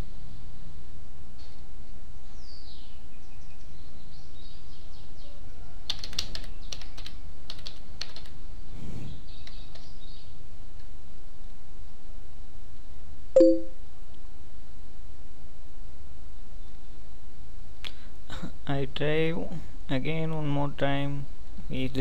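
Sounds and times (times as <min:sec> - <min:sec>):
keyboard typing: 0:05.9 - 0:08.3.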